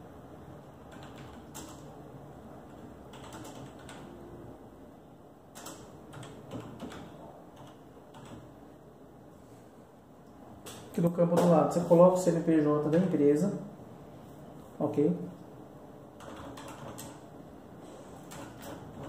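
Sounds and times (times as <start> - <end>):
typing on computer keyboard: 0.8 - 2.0, 2.6 - 4.1, 5.5 - 8.5, 16.2 - 17.3, 18.2 - 19.0.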